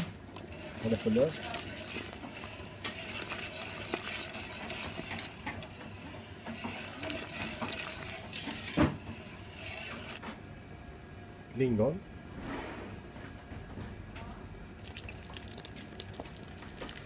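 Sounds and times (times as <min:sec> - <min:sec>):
whisk scraping and clicking in pan: 0:00.0 - 0:10.2.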